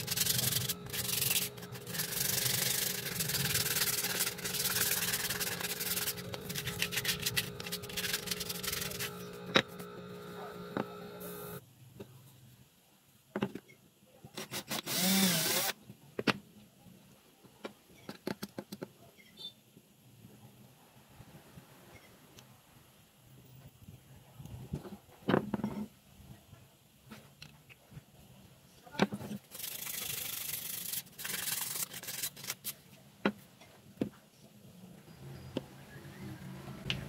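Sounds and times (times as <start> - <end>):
sandpaper rubbing wood: 0.0 - 11.6, 29.4 - 32.8
scraping: 0.0 - 11.6
knocks and handling sounds: 0.0 - 12.1, 13.3 - 13.7.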